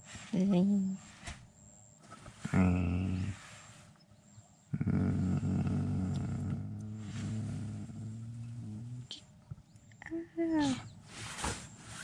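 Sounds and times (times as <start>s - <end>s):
person groaning: 2.5s - 3.4s, 4.8s - 9.0s.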